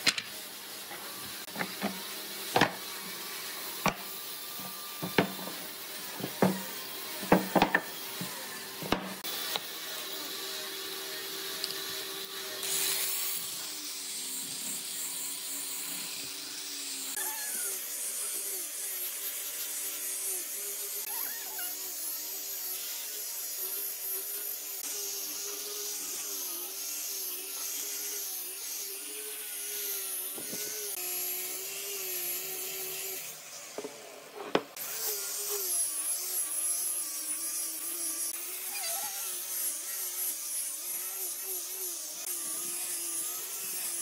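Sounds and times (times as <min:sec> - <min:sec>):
angle grinder sanding wood: 0:00.0 - 0:44.0
wooden blocks knocked on workbench: 0:06.2 - 0:07.9.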